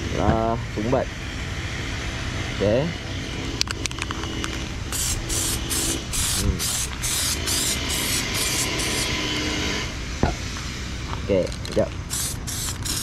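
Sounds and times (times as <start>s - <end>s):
spray can hissing bursts: 4.9s - 9.2s, 12.0s - 13.0s.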